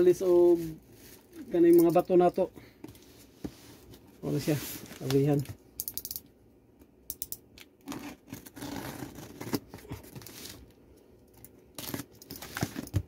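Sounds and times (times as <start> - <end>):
packing tape being slit and torn: 7.6 - 10.7, 11.7 - 13.0.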